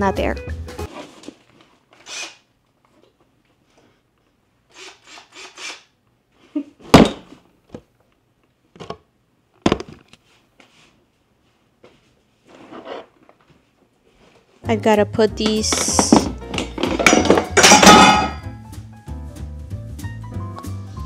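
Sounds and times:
tools knocking together: 15.5s - 18.4s.

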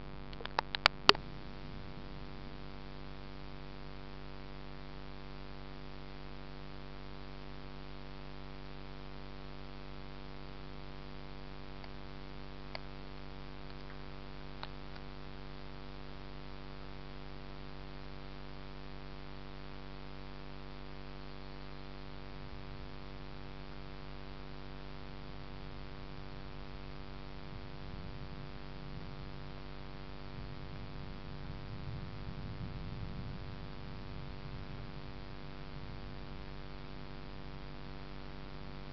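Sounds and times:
steady electrical hum: 0.0s - 38.9s
faint clicks: 0.3s - 1.3s
low uneven rumble: 27.3s - 36.9s.

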